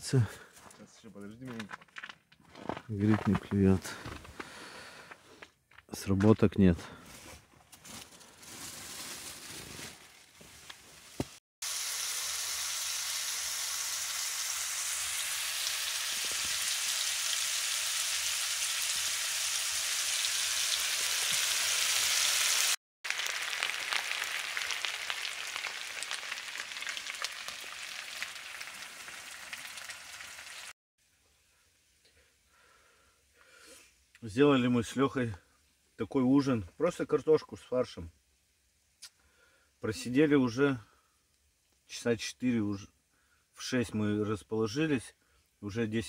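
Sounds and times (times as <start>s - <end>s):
meat sizzling in a frying pan: 11.6s - 30.7s.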